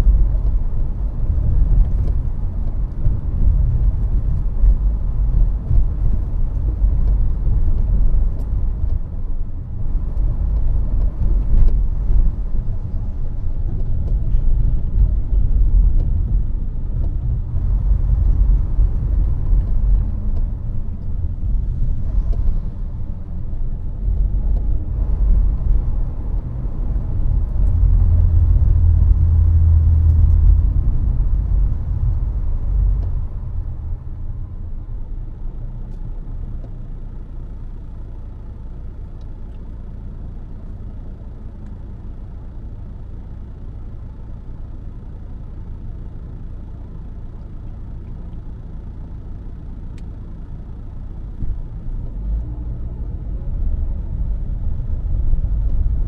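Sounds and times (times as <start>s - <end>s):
deep drone: 0.0s - 36.5s
vehicle engine and road noise: 0.0s - 56.0s.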